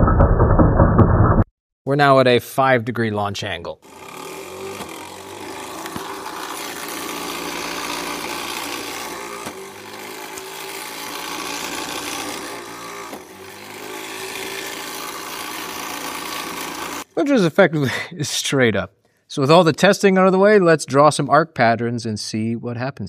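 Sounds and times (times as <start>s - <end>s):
motor whirring: 3.8s - 17.2s.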